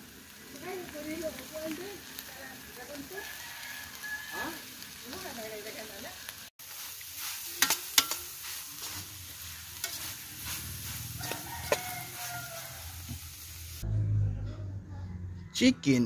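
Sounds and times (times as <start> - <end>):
meat sizzling: 0.0 - 13.8
metal spatula scraping a pan: 6.6 - 13.4
low rumble: 13.7 - 15.5.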